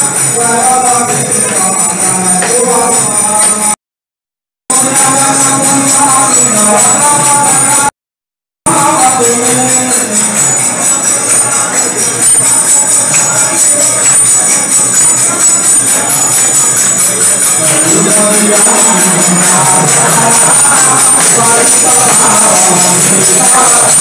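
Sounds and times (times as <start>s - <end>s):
crowd singing devotional chant: 4.7s - 7.9s, 17.4s - 24.0s.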